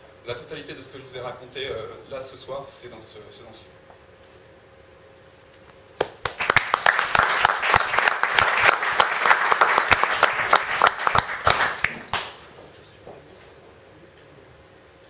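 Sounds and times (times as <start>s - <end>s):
audience applauding: 6.0s - 12.4s.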